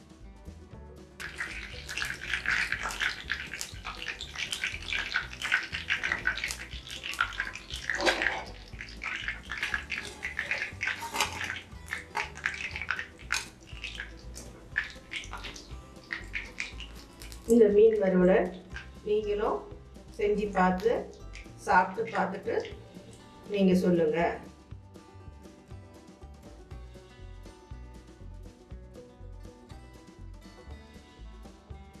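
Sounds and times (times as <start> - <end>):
fish sizzling in frying oil: 1.2 - 17.7, 18.4 - 19.3, 20.0 - 23.4
oil popping: 1.2 - 23.5.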